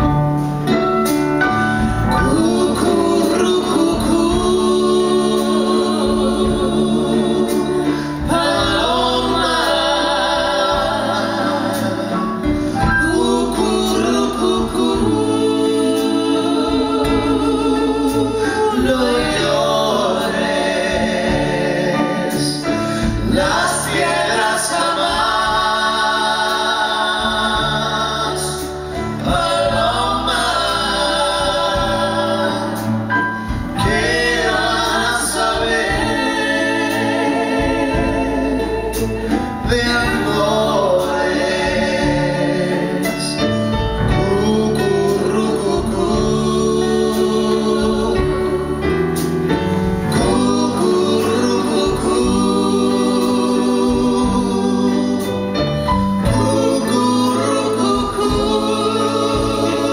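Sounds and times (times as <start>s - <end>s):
instrumental accompaniment: 0.0s - 59.9s
low bass notes: 0.0s - 59.9s
vocal trio singing in harmony: 0.0s - 59.9s.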